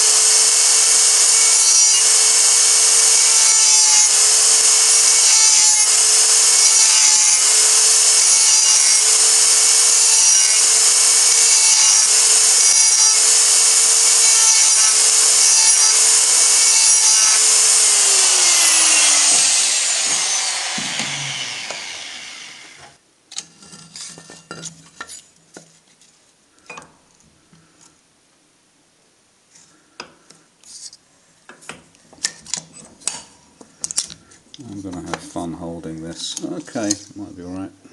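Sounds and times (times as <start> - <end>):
die grinder whining: 0.0 - 23.0.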